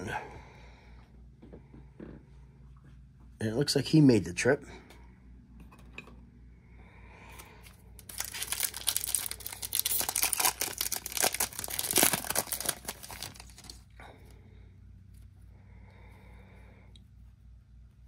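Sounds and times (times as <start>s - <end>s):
card pack wrapper tearing: 8.0s - 13.9s.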